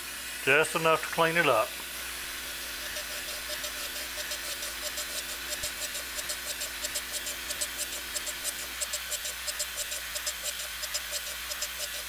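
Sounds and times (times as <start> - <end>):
grinder motor hum: 0.0 - 12.0
grinding wheel hissing on steel: 0.0 - 12.0.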